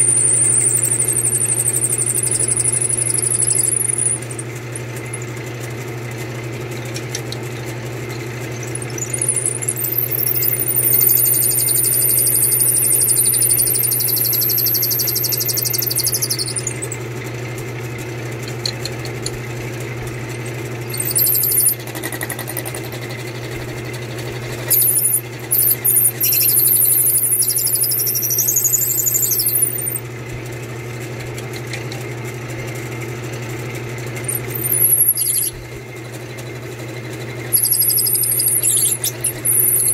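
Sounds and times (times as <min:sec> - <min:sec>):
drill bit squealing in wood: 0:00.0 - 0:05.5, 0:06.8 - 0:17.0, 0:20.4 - 0:30.0, 0:34.3 - 0:35.8, 0:37.4 - 0:39.9
lathe motor hum: 0:00.0 - 0:39.9.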